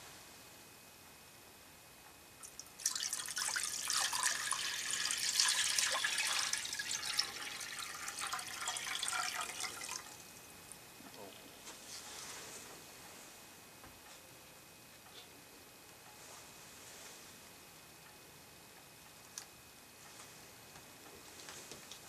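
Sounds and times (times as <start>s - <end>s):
water pouring into a pot: 2.5s - 10.1s.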